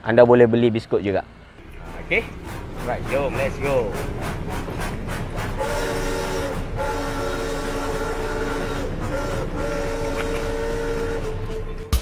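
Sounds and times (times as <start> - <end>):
train whistle blasts: 5.5 - 11.9.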